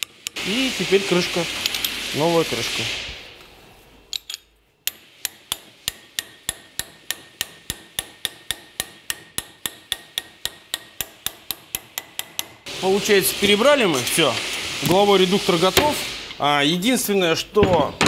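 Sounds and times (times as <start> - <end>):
hammer striking metal socket: 4.1 - 12.6.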